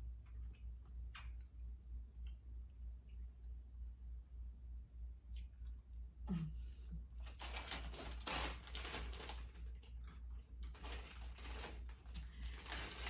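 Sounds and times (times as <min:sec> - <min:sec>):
crisp packet crinkling: 0:07.2 - 0:13.0.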